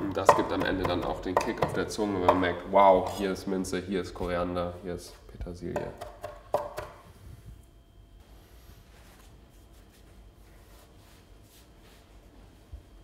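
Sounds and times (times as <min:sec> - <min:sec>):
knife chopping herbs on wooden board: 0:00.0 - 0:02.6, 0:05.8 - 0:07.0.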